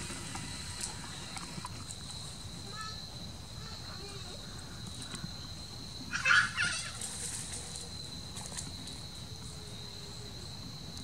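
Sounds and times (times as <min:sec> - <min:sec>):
high insect trill: 0:00.0 - 0:11.0.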